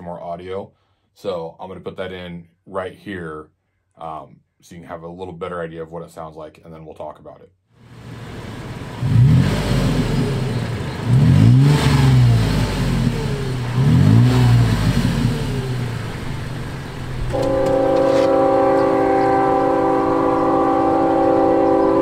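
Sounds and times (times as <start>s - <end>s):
car engine revving: 7.8s - 22.0s
train horn multi-tone chord: 17.2s - 22.0s.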